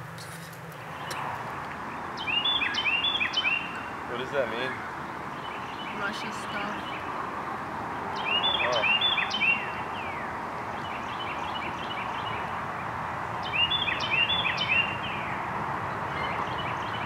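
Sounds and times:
songbird whistling: 2.2 - 3.9, 8.2 - 10.3, 13.4 - 15.4.

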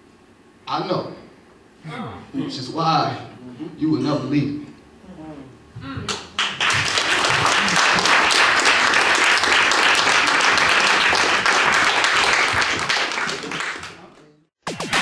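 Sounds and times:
audience applauding: 6.4 - 14.3.

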